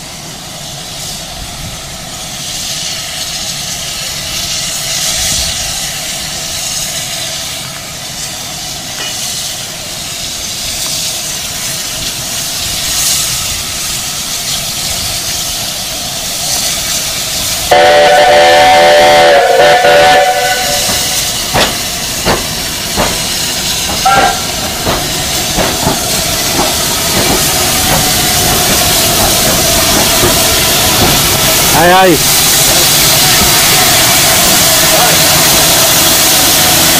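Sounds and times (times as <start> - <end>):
steam hissing: 0.0 - 36.9
chord-like steam whistle: 17.7 - 21.4, 24.0 - 24.5.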